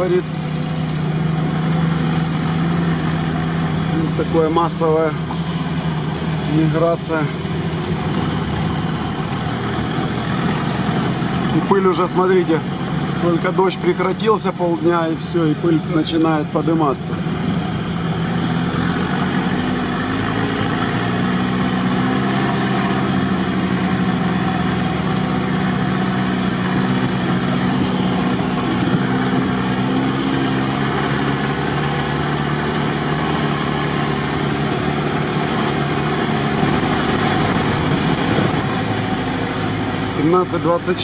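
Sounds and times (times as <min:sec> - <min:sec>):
off-road vehicle engine running: 0:00.0 - 0:41.0
wind and road noise: 0:00.0 - 0:41.0.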